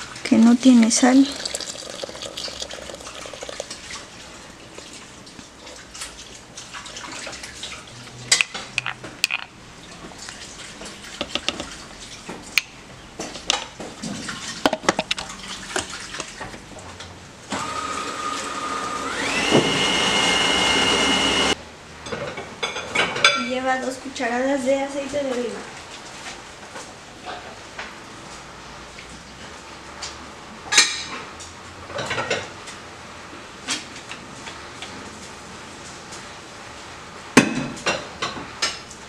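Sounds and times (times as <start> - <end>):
liquid pouring into plastic bowl: 1.2 - 5.0
food processor motor whining: 17.5 - 21.6.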